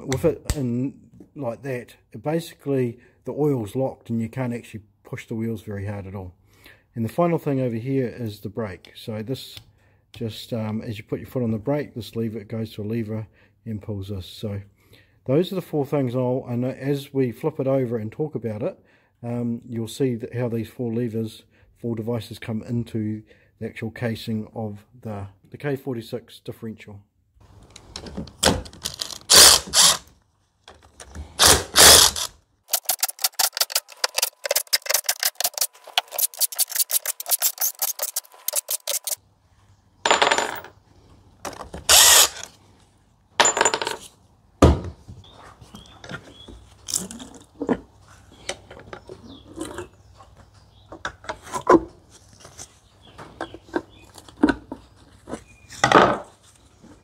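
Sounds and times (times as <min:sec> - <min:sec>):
bolts and tools clinking: 0:27.6 - 0:39.2, 0:40.1 - 0:40.7, 0:41.4 - 0:42.5, 0:43.4 - 0:44.1
cordless drill running: 0:28.9 - 0:30.1, 0:31.4 - 0:34.6, 0:41.9 - 0:42.5
rapid even clicking: 0:31.4 - 0:39.2.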